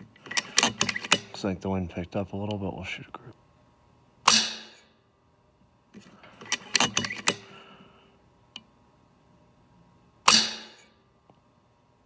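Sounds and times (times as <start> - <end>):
air rifle shot: 4.2 - 4.8, 10.3 - 10.8.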